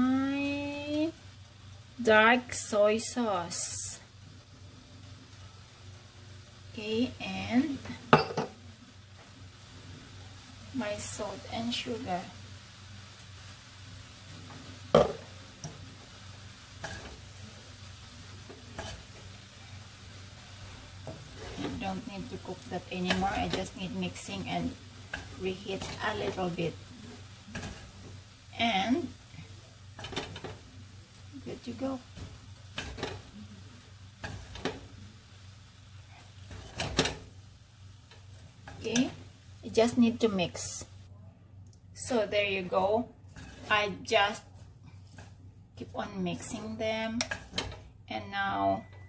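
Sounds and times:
faint sizzle: 0:00.0 - 0:49.0
noodles stirred with chopsticks: 0:11.7 - 0:39.8, 0:42.5 - 0:46.6.

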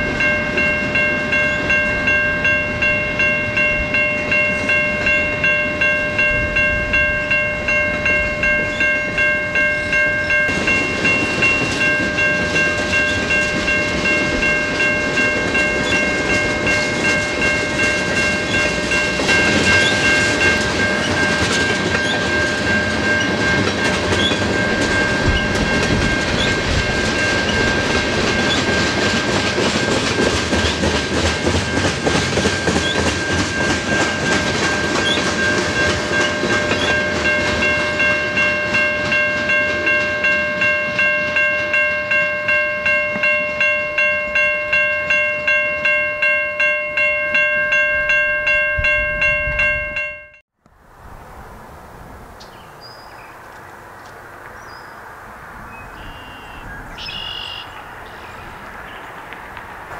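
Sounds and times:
crossing warning bell ringing: 0:00.0 - 0:50.4, 0:56.0 - 0:59.2
train wheels clattering over rails: 0:10.3 - 0:40.7.

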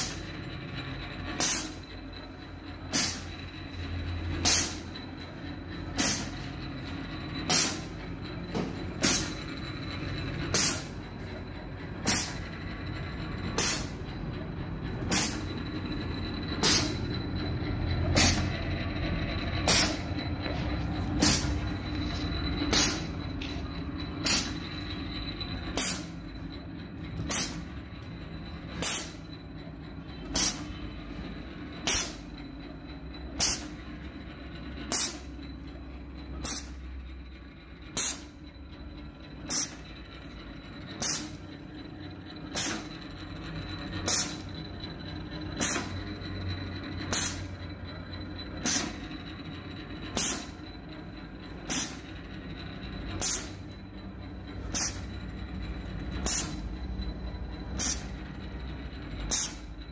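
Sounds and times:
compressed air blasts hissing: 0:02.9 - 0:03.3, 0:06.0 - 0:06.3, 0:10.6 - 0:10.9, 0:12.1 - 0:12.4, 0:16.6 - 0:17.0, 0:21.2 - 0:21.5.

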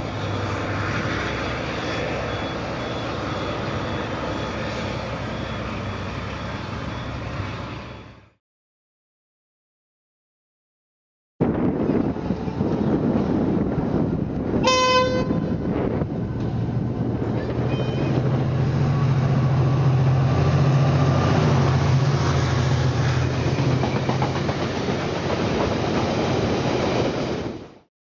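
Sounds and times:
diesel engine droning: 0:00.0 - 0:08.4, 0:11.6 - 0:24.2
locomotive horn blast: 0:14.6 - 0:15.7, 0:17.4 - 0:18.4.

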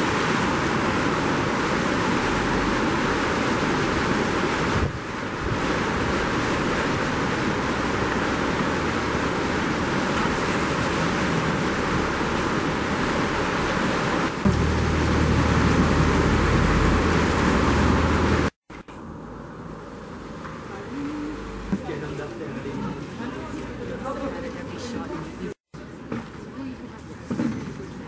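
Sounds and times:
river running over rocks: 0:00.0 - 0:18.6.

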